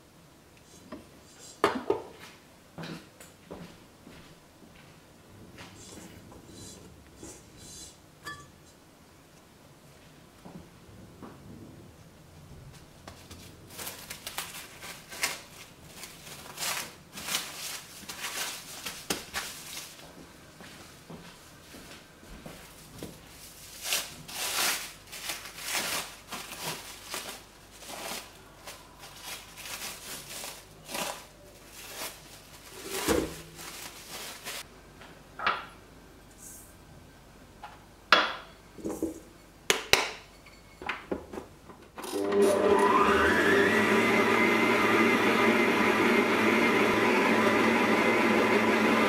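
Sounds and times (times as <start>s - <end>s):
handling rustles: 12.7s - 20.3s, 22.4s - 34.7s
stand mixer motor whine: 42.1s - 49.0s.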